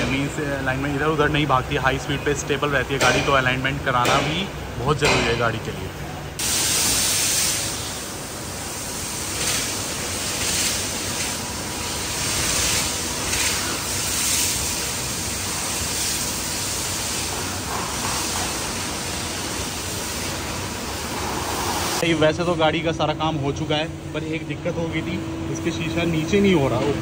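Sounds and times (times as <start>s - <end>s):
loud hiss of rushing air: 6.4s - 22.2s.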